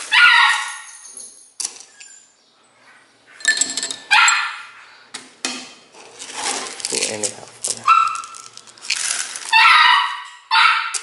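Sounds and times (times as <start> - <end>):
dogs yipping: 0.0 - 1.0, 4.1 - 4.9, 7.8 - 8.5, 9.5 - 11.0
kibble poured onto a plate: 6.2 - 9.6.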